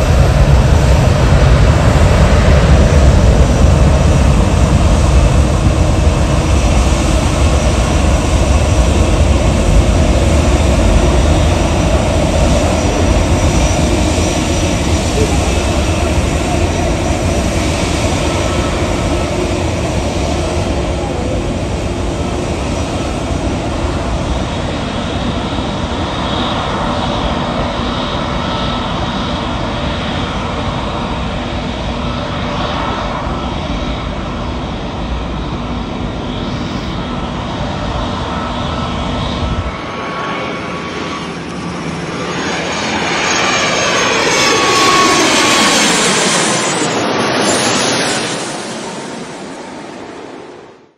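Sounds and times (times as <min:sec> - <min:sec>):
airliner engines rumbling: 0:00.0 - 0:50.9
approaching aircraft engine noise: 0:00.0 - 0:50.9.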